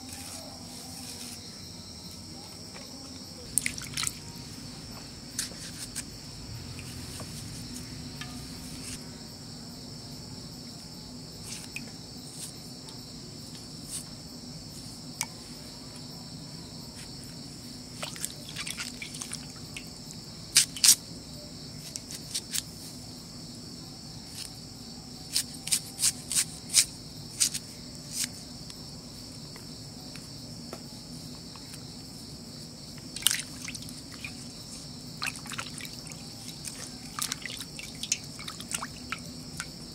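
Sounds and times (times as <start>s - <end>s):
crickets chirring: 0.0s - 39.9s
water dripping and splashing: 3.5s - 4.2s, 18.0s - 19.9s, 33.2s - 34.5s, 35.2s - 39.7s
vegetables being cut in water: 35.2s - 39.7s.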